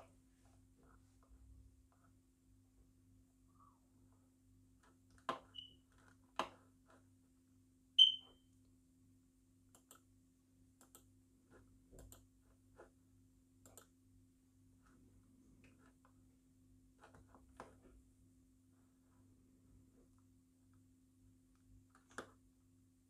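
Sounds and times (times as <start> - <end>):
high-pitched electronic beep: 8.0 - 8.4.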